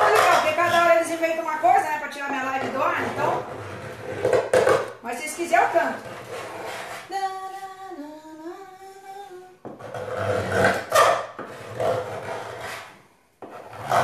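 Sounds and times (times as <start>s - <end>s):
woman singing: 7.1s - 9.7s.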